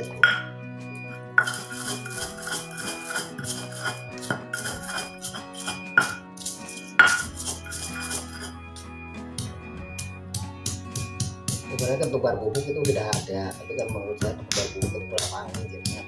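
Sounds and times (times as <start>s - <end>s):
background music: 0.0s - 16.0s
pestle grinding in stone mortar: 1.3s - 8.9s.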